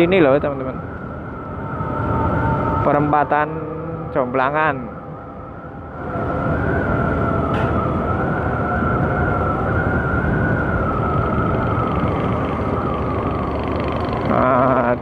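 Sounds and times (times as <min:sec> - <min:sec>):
wind noise on microphone: 0:00.0 - 0:15.0
scooter engine with high whine: 0:06.0 - 0:15.0.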